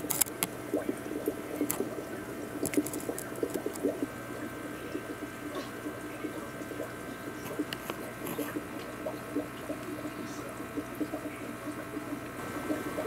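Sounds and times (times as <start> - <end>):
aquarium water bubbling: 0.0 - 13.0
constant hum: 0.0 - 13.0.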